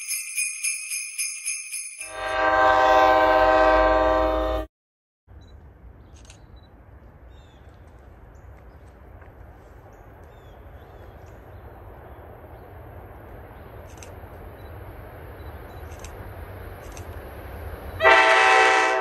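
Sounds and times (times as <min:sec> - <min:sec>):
distant train rumble: 0:05.3 - 0:19.0
small birds chirping: 0:05.4 - 0:16.1.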